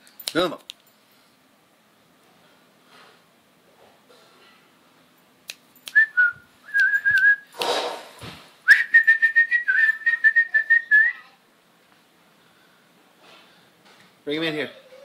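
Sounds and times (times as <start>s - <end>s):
person whistling: 5.9s - 7.5s, 8.7s - 11.2s.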